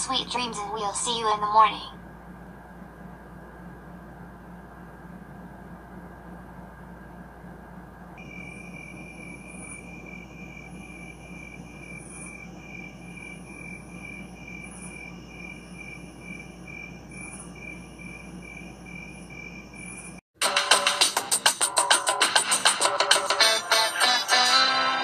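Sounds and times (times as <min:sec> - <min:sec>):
crickets chirping: 0:08.2 - 0:20.2
high insect trill: 0:08.2 - 0:20.2.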